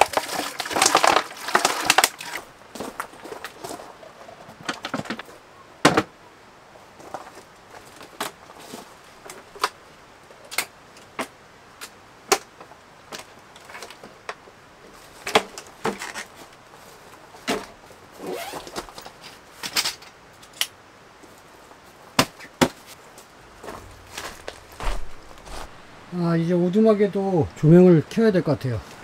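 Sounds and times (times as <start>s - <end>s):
rustling: 0.0s - 5.5s, 6.8s - 26.2s
wooden knocks and clacks: 4.4s - 5.2s.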